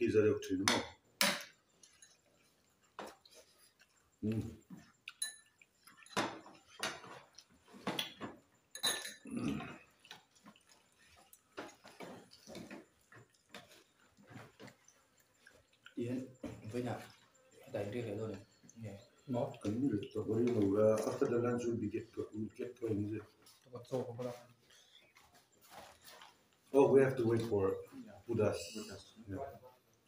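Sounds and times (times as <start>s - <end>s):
chewing and lip smacks: 9.8s - 16.0s.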